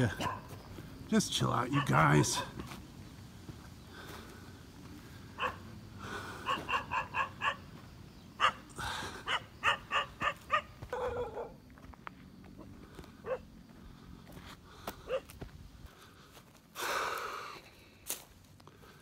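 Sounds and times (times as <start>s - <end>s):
dog barking: 0.1s - 0.5s, 1.7s - 2.7s, 5.4s - 5.7s, 6.4s - 7.6s, 8.4s - 11.6s, 13.2s - 13.5s, 15.1s - 15.3s.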